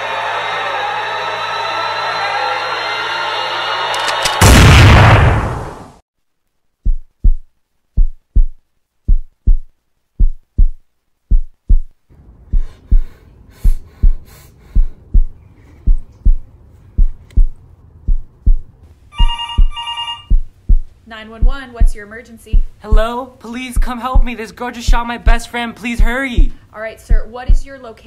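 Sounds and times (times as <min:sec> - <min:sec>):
loud gunshot: 0:04.2 - 0:05.9
heartbeat thumps: 0:06.8 - 0:27.8
telephone ringing: 0:19.1 - 0:20.3.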